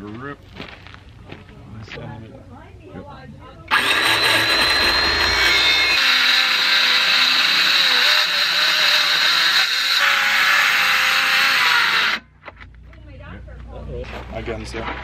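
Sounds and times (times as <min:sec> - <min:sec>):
circular saw cutting plywood: 0:03.7 - 0:12.3.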